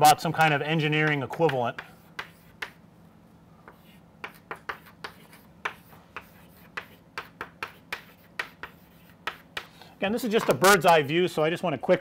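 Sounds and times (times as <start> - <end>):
faint steady hum: 0.0 - 12.0
chalk tapping on chalkboard: 0.4 - 2.8, 3.6 - 9.8.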